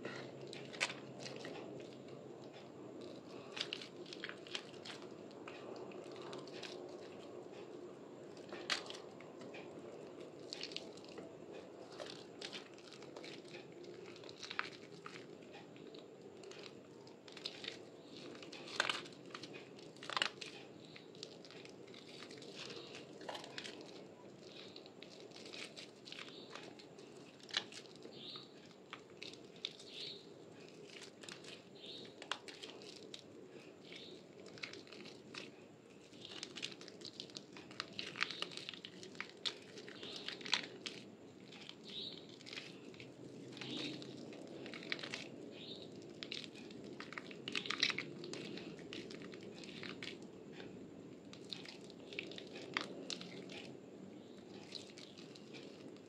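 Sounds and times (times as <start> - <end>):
wet soap squishing in hands: 0.0 - 56.0.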